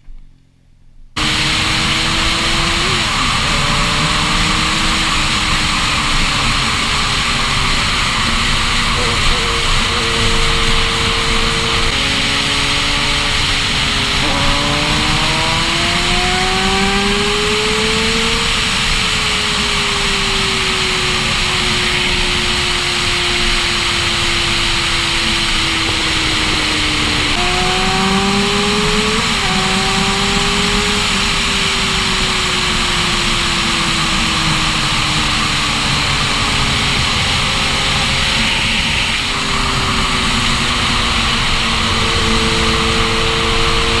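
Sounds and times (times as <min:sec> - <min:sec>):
motorcycle engine accelerating: 0:00.0 - 0:44.0.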